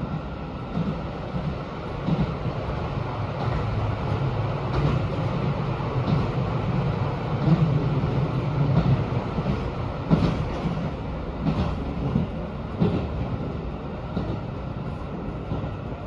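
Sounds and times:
train low rumble: 0.0s - 16.0s
wheels knocking on rails: 0.7s - 2.5s, 4.6s - 13.4s.

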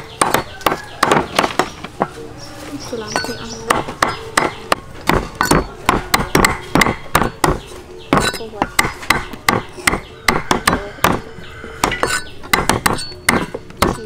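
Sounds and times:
cleaver chopping on wooden block: 0.0s - 1.8s, 3.2s - 14.0s.

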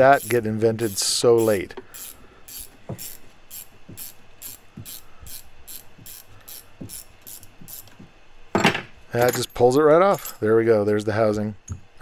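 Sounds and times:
ratcheting wrench clicking: 0.0s - 8.0s.

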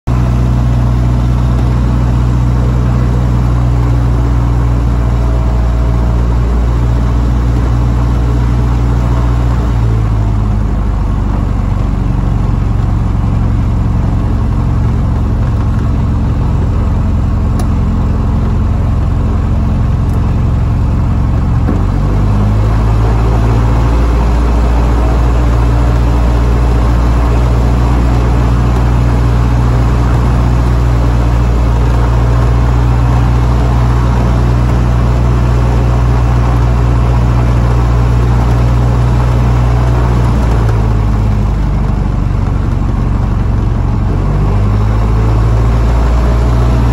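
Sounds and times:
light aircraft engine and propeller: 0.1s - 46.9s.

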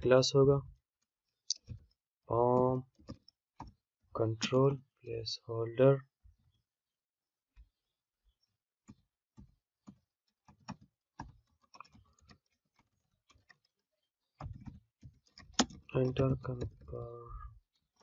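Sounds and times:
typing on computer keyboard: 14.4s - 16.8s.

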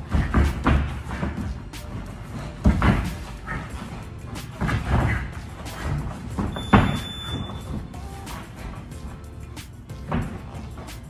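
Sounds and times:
background music: 0.0s - 11.0s
shoes thudding on canvas: 0.1s - 7.9s.

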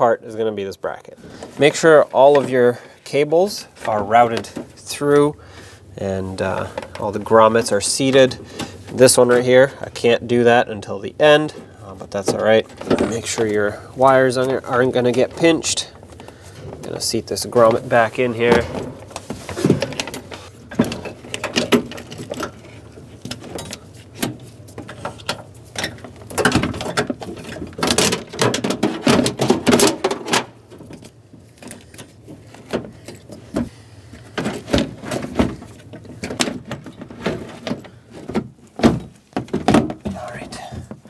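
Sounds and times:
plastic and metal clicking and rattling: 18.4s - 41.0s.

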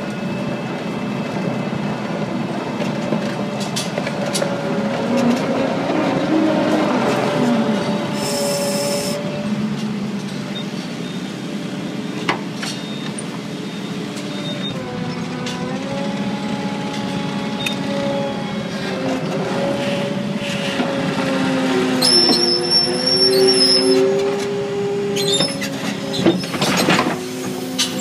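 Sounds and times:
feed mixer machinery drone: 14.2s - 22.2s.

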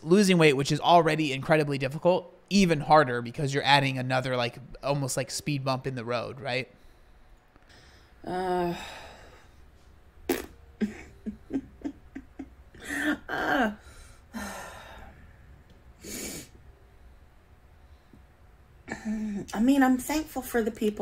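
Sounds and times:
woman sighing: 8.2s - 9.5s, 12.8s - 15.1s, 18.9s - 19.5s
woman murmuring: 10.8s - 13.8s.

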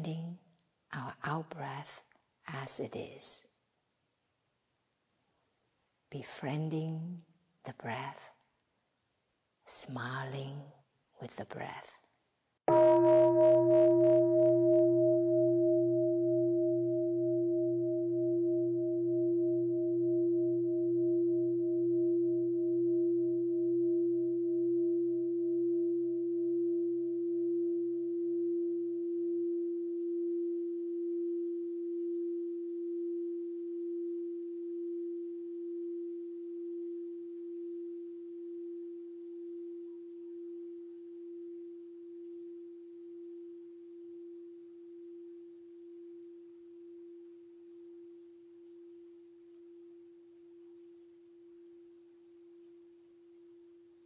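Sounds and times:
meditation bell ringing: 12.7s - 47.2s.

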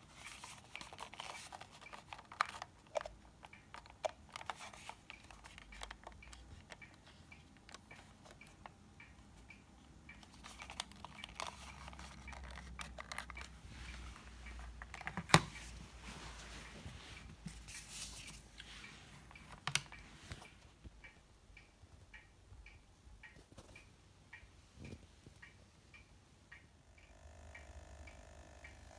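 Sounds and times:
plastic handling rustles and clicks: 0.0s - 20.8s
faint ticking: 3.0s - 17.7s, 18.3s - 28.9s.

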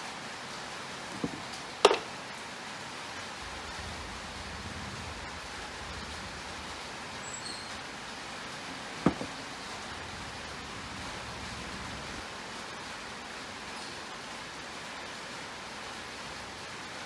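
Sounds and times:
background hiss: 0.0s - 17.0s
faint low rumble: 3.3s - 8.0s, 9.2s - 12.5s.

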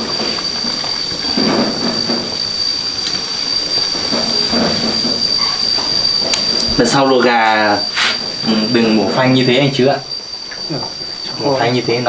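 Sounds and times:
water boiling and bubbling: 0.0s - 11.4s
steady high whine: 0.0s - 12.0s.

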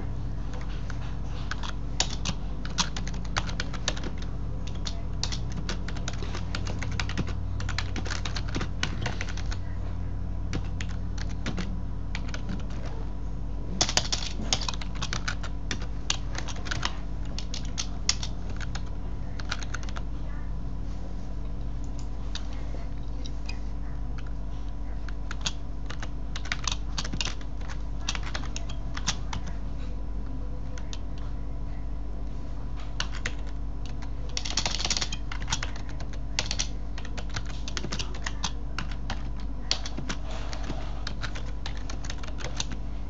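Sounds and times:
steady low hum: 0.0s - 43.0s
computer keyboard typing: 0.5s - 9.6s, 10.5s - 13.0s, 13.8s - 20.0s, 25.0s - 29.6s, 30.6s - 31.2s, 32.9s - 42.8s.

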